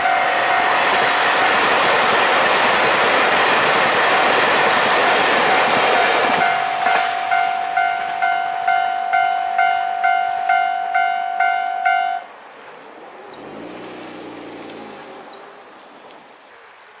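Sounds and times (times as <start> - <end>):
level crossing bell ringing: 6.4 - 12.2.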